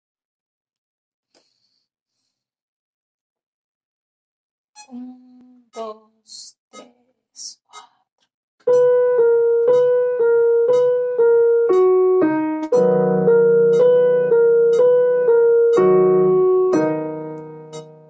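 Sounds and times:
slow piano melody: 8.6 - 18.0.

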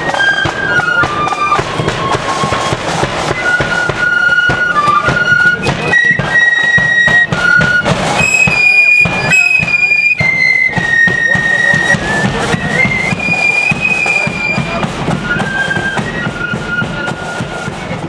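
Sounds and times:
flutes playing in unison: 0.0 - 18.0
rapid drumming: 0.0 - 18.0.

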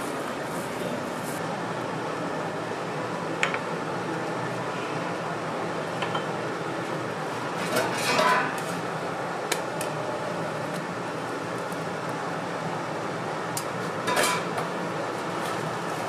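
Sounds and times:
metal utensils clinking and scraping: 7.6 - 8.6, 14.1 - 14.5.

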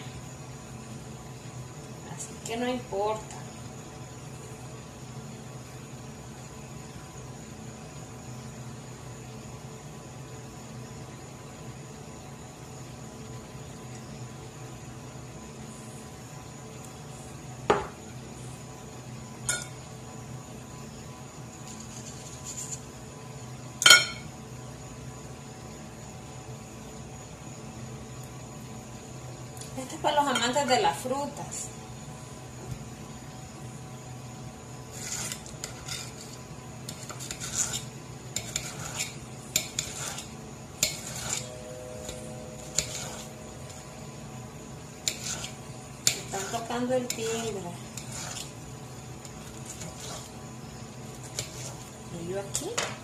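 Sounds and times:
dishes knocking and clinking: 17.7 - 18.0
knife scraping a plate: 21.6 - 22.9, 34.9 - 43.9, 45.0 - 48.6, 49.2 - 50.4, 51.1 - 52.0.

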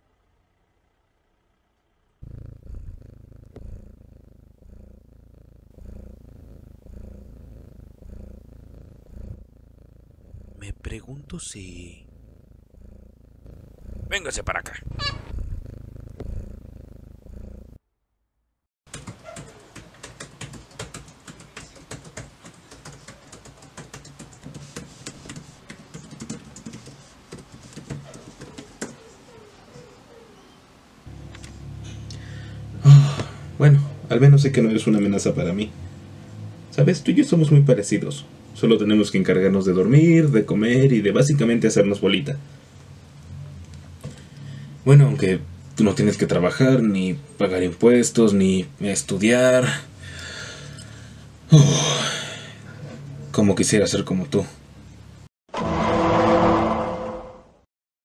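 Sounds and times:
cat purring: 2.1 - 17.8, 19.4 - 51.7
laptop keyboard typing: 18.9 - 29.0.

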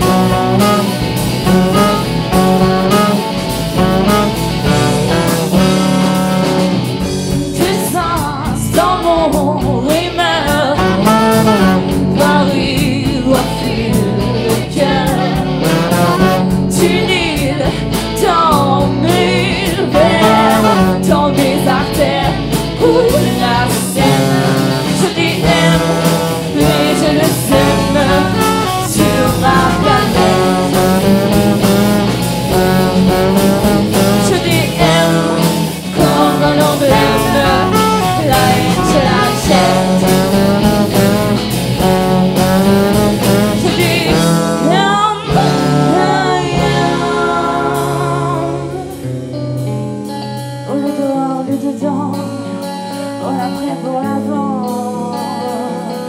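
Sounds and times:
live band playing: 0.0 - 56.0
woman singing: 7.5 - 31.1, 33.7 - 41.1, 43.1 - 49.1, 50.7 - 56.0.

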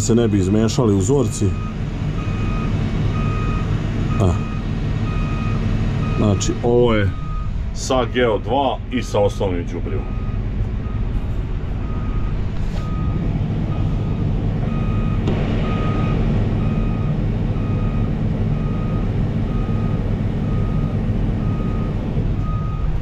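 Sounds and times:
combine harvester working: 0.0 - 23.0
tractor engine running: 0.0 - 23.0
electronic warning beeps: 0.1 - 8.2, 9.0 - 11.1, 11.8 - 22.9.

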